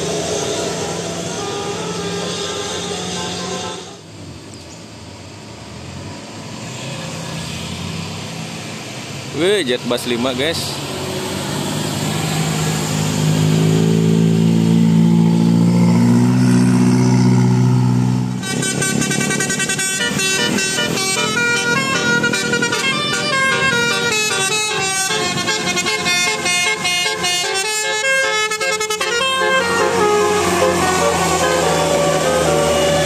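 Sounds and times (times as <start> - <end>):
musical bus horn tune: 0.0 - 4.1, 18.4 - 33.0
bus engine droning: 0.0 - 33.0.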